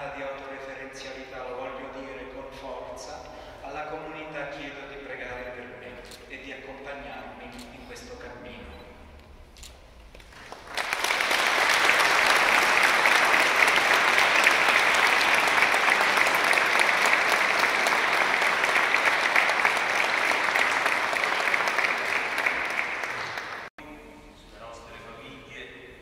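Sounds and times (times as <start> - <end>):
congregation applauding: 10.2 - 23.7.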